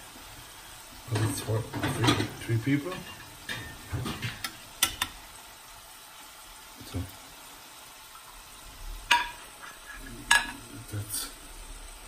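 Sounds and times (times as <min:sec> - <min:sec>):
steady low hiss: 0:00.0 - 0:12.0
plates clicking and knocking: 0:09.1 - 0:09.4, 0:10.2 - 0:10.6.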